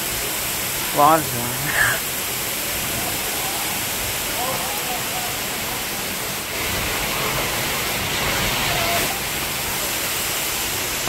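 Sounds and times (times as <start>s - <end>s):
heavy rain pouring: 0.0s - 11.0s.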